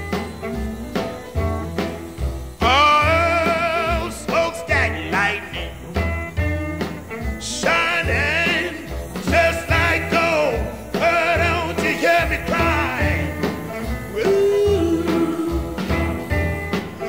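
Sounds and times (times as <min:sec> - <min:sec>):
steady bass beat: 0:01.4 - 0:17.0
person singing: 0:02.6 - 0:05.8, 0:07.4 - 0:17.0.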